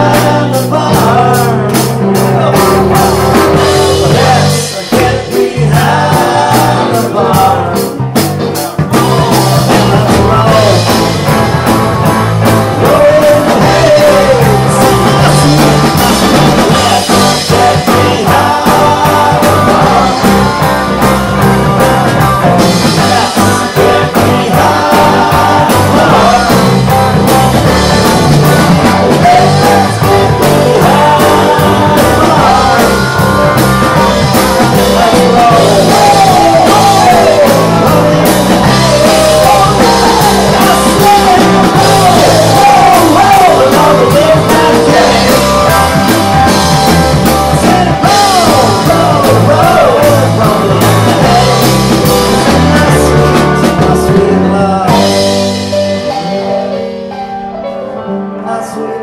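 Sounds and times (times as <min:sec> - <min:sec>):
person singing: 0:00.0 - 0:59.0
rock band playing live: 0:00.0 - 0:59.0
lead guitar bending in pitch: 0:08.8 - 0:53.1.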